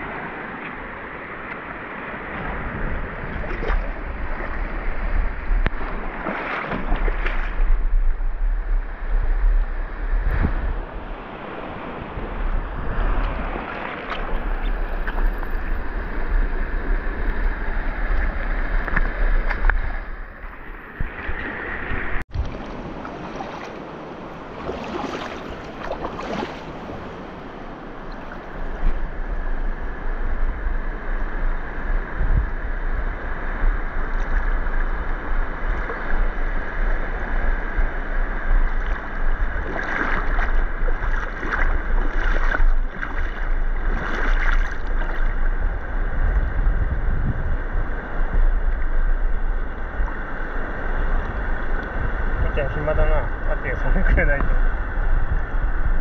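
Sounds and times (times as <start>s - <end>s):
outdoor water noise: 0.0s - 56.0s
wind buffeting microphone: 0.0s - 56.0s.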